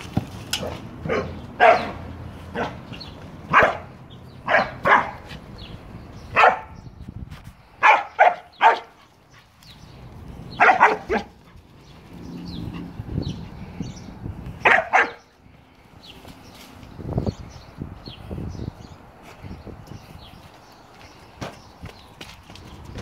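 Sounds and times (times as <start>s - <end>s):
dog barking: 0.6s - 2.8s, 3.5s - 5.3s, 6.3s - 6.8s, 7.8s - 8.9s, 10.6s - 11.4s, 14.6s - 15.2s.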